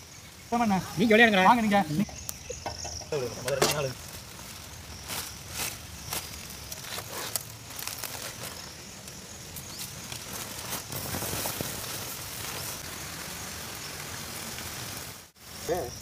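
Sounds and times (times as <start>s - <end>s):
steady outdoor hiss: 0.0s - 16.0s
aluminium foil crinkling: 3.1s - 13.0s.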